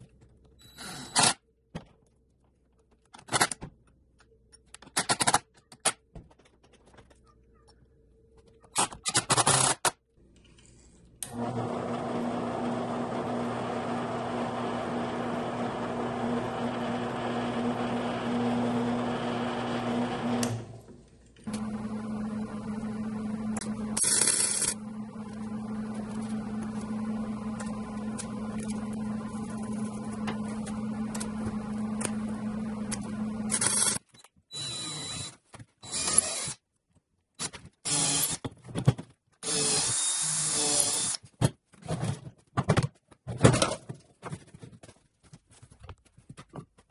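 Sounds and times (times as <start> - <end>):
electric motor humming: 11.3 - 33.8
cordless drill whirring: 21.5 - 36.6, 39.4 - 41.2.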